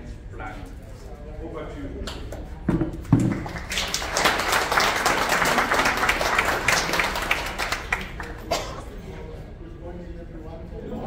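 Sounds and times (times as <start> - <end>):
crowd applauding: 3.2 - 8.5.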